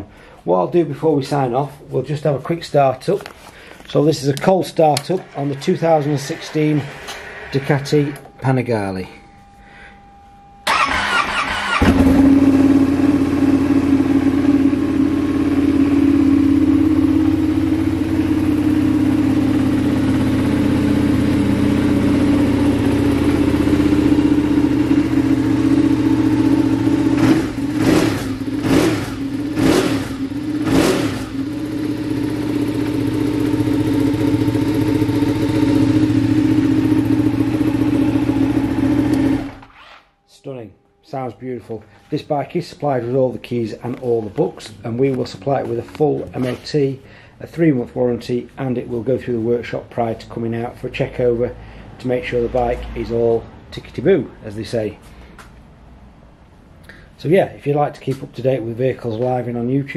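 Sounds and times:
engine throttle blips: 0:04.1 - 0:40.4
starter motor cranking: 0:10.7 - 0:12.3
motorcycle engine idling: 0:10.7 - 0:39.6.

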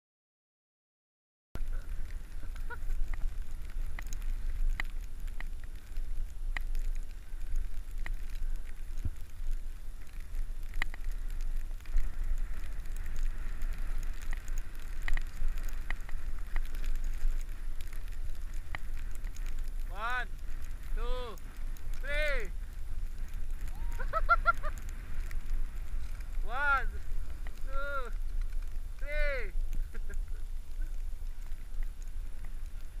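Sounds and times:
skis crackling over packed snow: 0:01.6 - 0:33.0.

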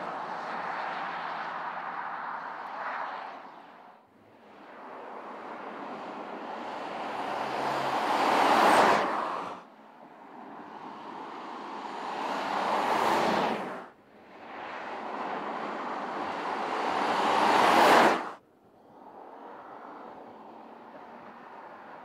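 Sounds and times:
car driving by: 0:10.7 - 0:18.4.

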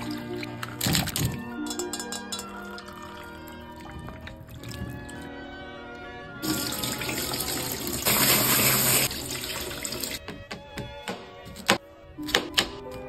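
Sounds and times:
background music: 0:00.0 - 0:13.0
tap water running into steel sink: 0:06.4 - 0:10.2.

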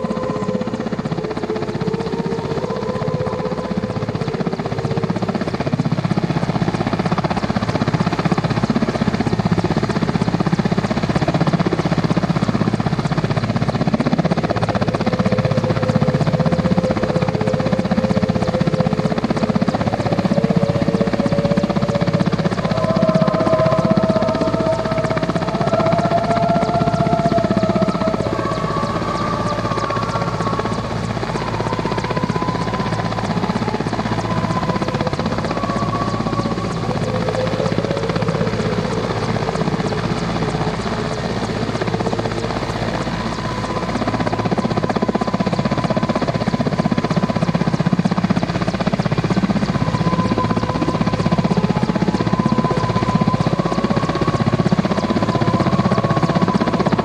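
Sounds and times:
helicopter rotor beat: 0:00.0 - 0:57.0
turbine whine: 0:00.0 - 0:57.0.

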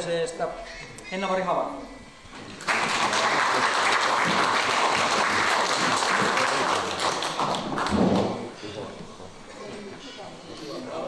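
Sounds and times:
crowd applauding: 0:02.6 - 0:08.5.

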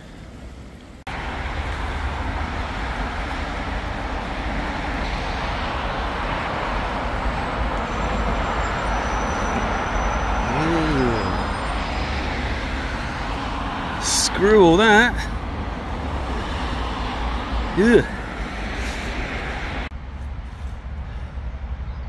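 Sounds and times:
vehicle running with low rumble: 0:00.0 - 0:14.1, 0:15.2 - 0:22.0.

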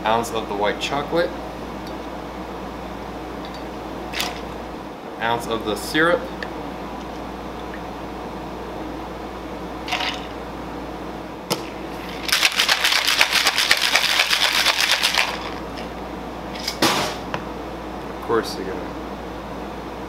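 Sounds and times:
ice rattling in cocktail shaker: 0:12.1 - 0:15.9.

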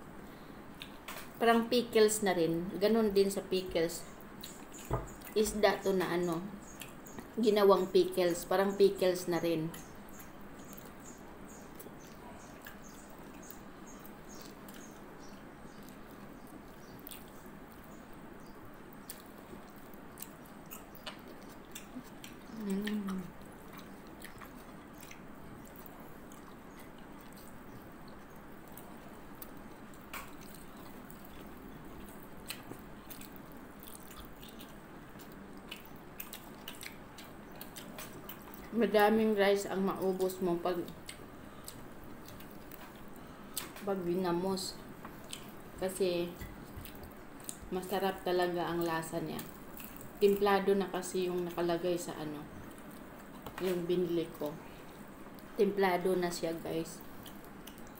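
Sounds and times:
faint chewing: 0:00.3 - 0:01.4, 0:02.9 - 0:57.9
woman humming: 0:22.6 - 0:23.4.

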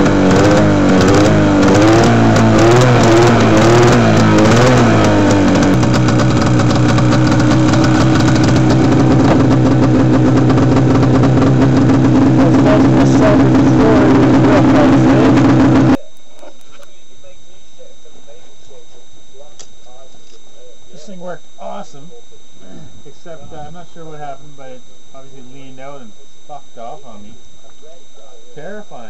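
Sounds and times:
snowmobile engine running: 0:00.0 - 0:16.0.

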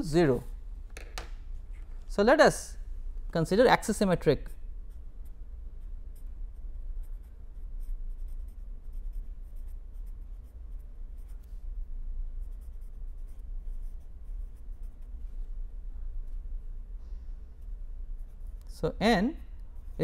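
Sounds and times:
steady low hum: 0:00.0 - 0:20.0
pen scratching on paper: 0:07.0 - 0:11.5, 0:12.4 - 0:15.1.

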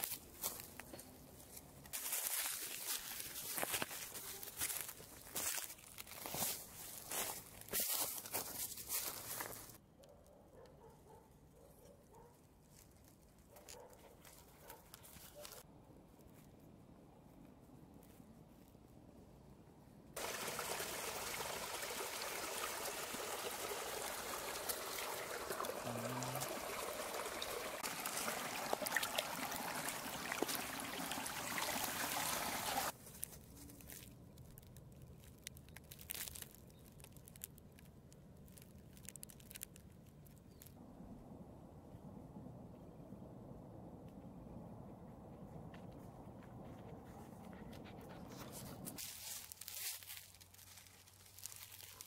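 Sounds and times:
leaves crackling: 0:00.0 - 0:09.8, 0:20.2 - 0:40.8, 0:49.0 - 0:52.0
water trickling: 0:20.2 - 0:32.9
light crackles and ticks: 0:33.2 - 0:40.8.

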